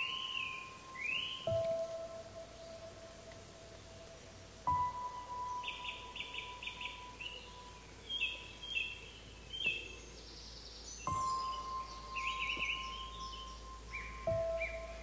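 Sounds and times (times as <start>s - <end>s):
held tone of background music: 0.0s - 8.0s, 11.1s - 15.0s
songbirds singing: 0.0s - 15.0s.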